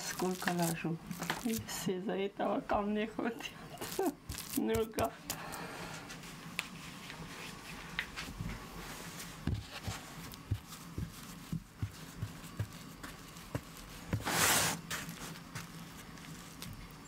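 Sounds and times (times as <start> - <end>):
hands patting dough: 0.0 - 1.8, 3.8 - 5.4, 6.5 - 17.0.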